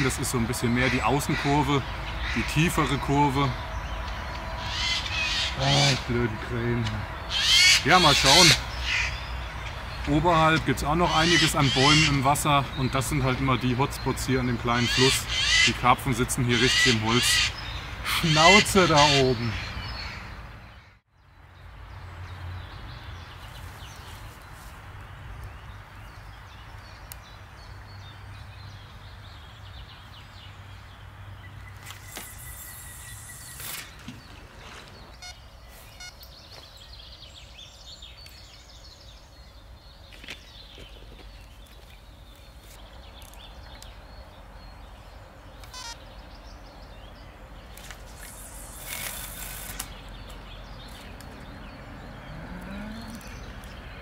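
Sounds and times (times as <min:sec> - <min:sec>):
river background noise: 0:00.0 - 0:54.0
faint bird chirps: 0:31.7 - 0:39.2, 0:45.5 - 0:46.3, 0:52.2 - 0:53.8.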